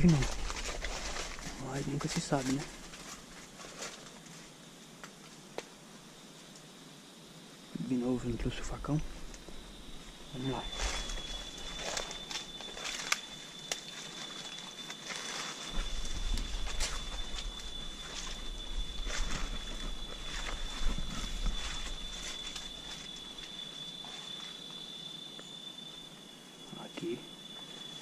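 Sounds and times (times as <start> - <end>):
footsteps through dry leaves: 0.0 - 4.2, 10.3 - 23.5
high-pitched insect drone: 0.0 - 28.0.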